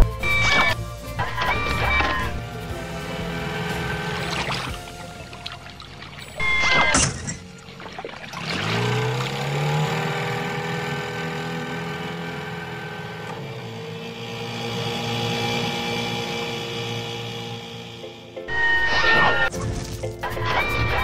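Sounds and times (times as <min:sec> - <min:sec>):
cartoon toy boat motor drone: 0:00.0 - 0:19.5, 0:20.3 - 0:21.0.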